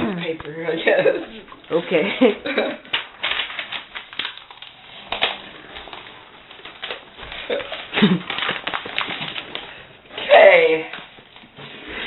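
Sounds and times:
paper towel crinkling: 0.9 - 12.0
crackles and clicks: 2.8 - 11.6.

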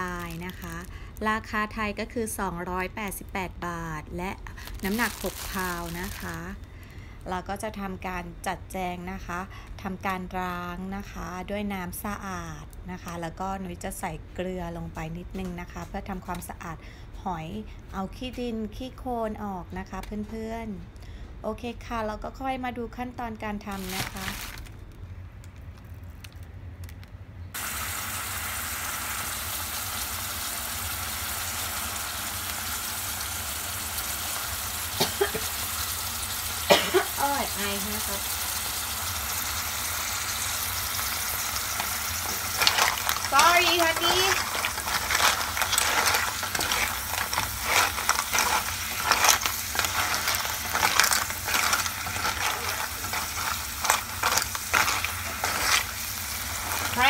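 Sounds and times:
clams sizzling in oil: 4.6 - 6.6, 27.6 - 57.0
shells and spoon clattering: 42.3 - 55.9.

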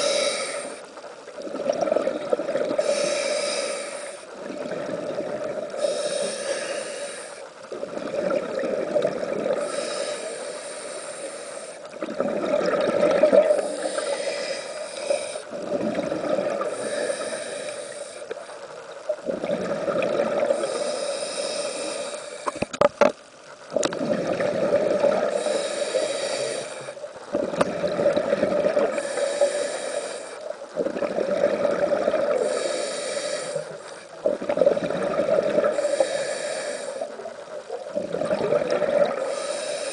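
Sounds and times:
diver inhaling through regulator: 0.0 - 1.0, 2.7 - 4.4, 5.7 - 7.6, 9.5 - 11.9, 13.3 - 15.6, 16.6 - 18.6, 20.4 - 22.8, 25.1 - 27.0, 28.6 - 30.5, 31.9 - 34.2, 35.2 - 37.2, 38.3 - 39.9
exhale bubbles rushing: 12.0 - 14.5, 19.2 - 20.7, 23.8 - 25.7, 27.3 - 29.3, 30.8 - 32.8, 34.2 - 36.1, 37.9 - 39.5.

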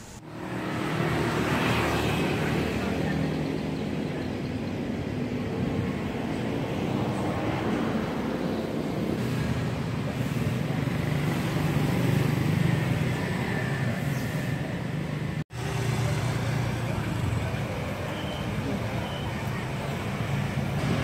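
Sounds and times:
road traffic rumble: 0.0 - 21.0
vehicle passing by: 0.1 - 4.6.

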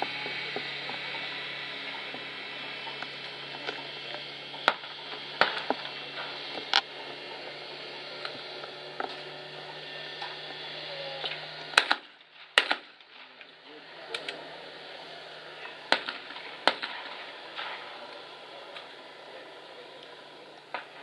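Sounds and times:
shotgun shots: 11.8 - 13.4, 15.9 - 17.8.

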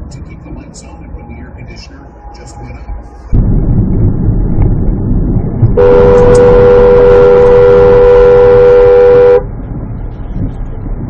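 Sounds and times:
low rumble of car driving: 0.0 - 11.0
two-note car horn: 5.8 - 9.5.

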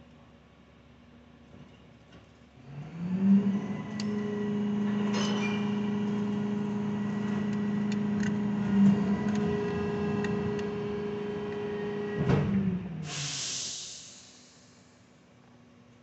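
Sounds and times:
car engine starting and idling: 3.7 - 13.1.

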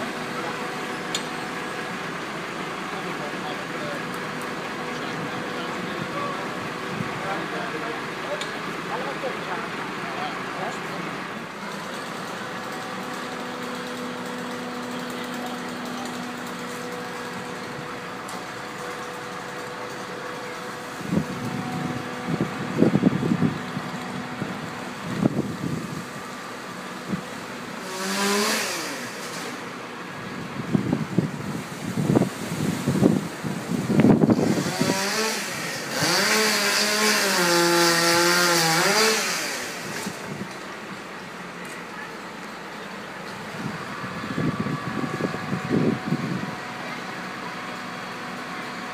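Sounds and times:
chainsaw cutting through branch: 11.5 - 30.0, 31.5 - 40.6
wind buffeting microphone: 21.0 - 26.2, 43.5 - 46.6.

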